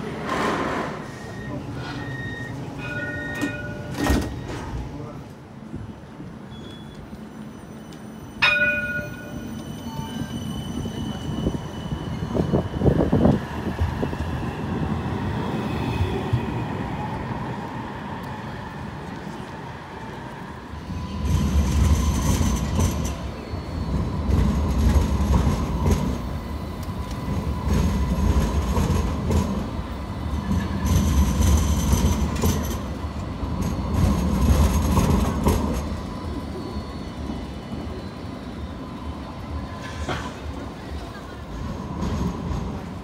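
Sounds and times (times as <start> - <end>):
tram rumbling past: 0.0 - 43.0
high wheel squeal: 1.0 - 4.8, 6.4 - 13.3, 21.0 - 25.0
wheels clicking over rail crossings: 1.9 - 5.4.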